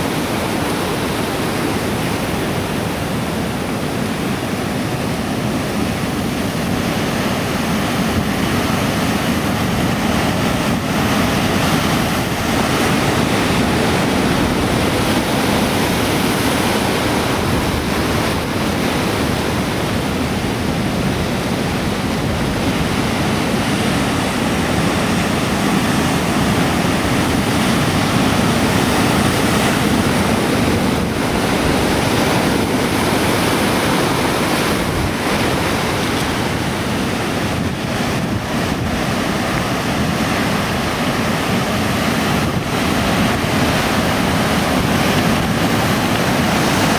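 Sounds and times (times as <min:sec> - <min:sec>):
heavy surf on rocky shore: 0:00.0 - 0:46.9.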